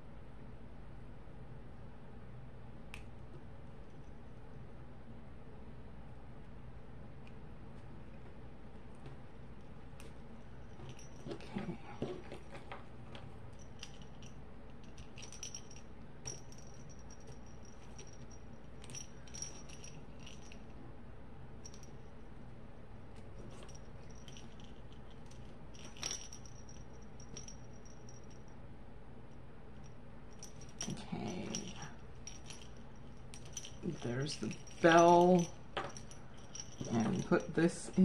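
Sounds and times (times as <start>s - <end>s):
keychain clinking: 10.5s - 12.6s, 13.5s - 20.7s, 21.6s - 22.2s, 23.3s - 28.5s, 30.3s - 38.0s.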